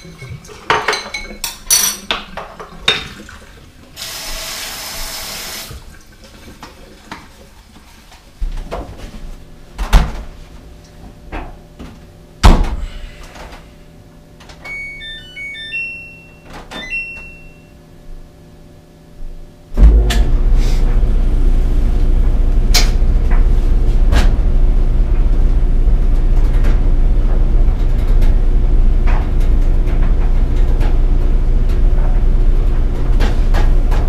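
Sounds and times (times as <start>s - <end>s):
faucet running: 2.8s - 6.3s
short electronic beeps: 14.7s - 17.7s.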